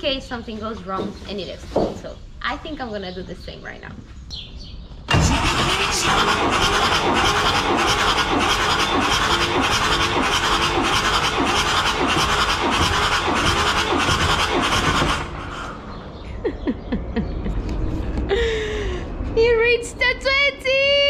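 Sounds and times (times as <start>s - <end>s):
diesel engine cranking on starter: 5.1s - 16.2s.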